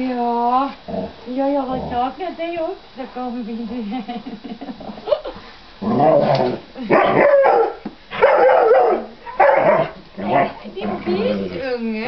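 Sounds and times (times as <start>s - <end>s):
dog barking and yowling: 5.9s - 10.6s.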